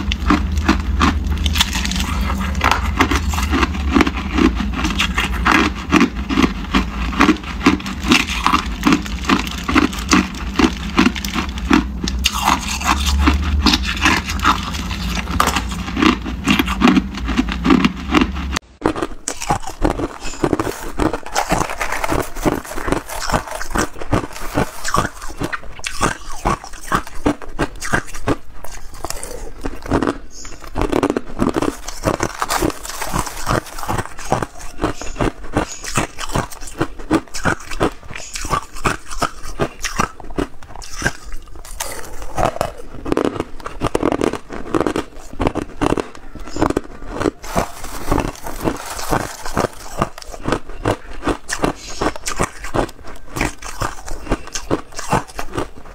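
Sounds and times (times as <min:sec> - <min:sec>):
ice crunching being chewed: 0:00.0 - 0:55.9
low steady hum: 0:00.0 - 0:55.9.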